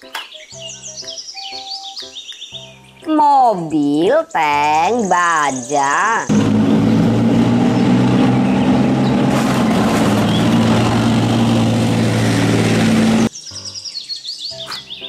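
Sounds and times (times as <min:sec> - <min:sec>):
tank diesel engine drone: 0:06.2 - 0:13.3
tank tracks: 0:06.3 - 0:13.3.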